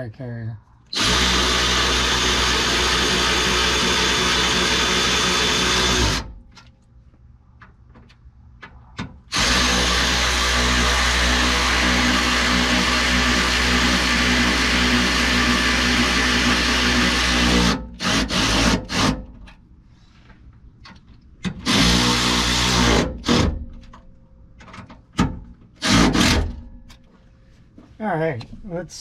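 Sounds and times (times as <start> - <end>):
cordless drill driving a bolt: 0.9 - 6.3, 9.3 - 19.2, 21.5 - 23.6, 25.8 - 26.6.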